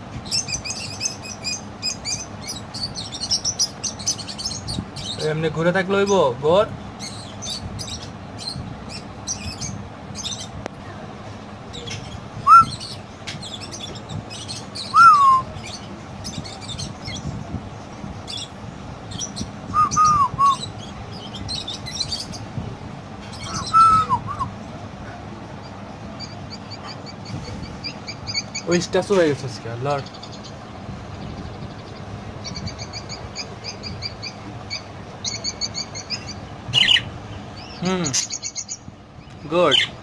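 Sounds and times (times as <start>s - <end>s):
budgerigars chirping: 0.2s - 10.5s, 11.8s - 17.3s, 18.3s - 22.5s, 23.2s - 24.5s, 25.6s - 40.0s
whistled bird note: 12.4s - 12.9s, 14.9s - 15.5s, 19.7s - 20.7s, 23.4s - 24.5s.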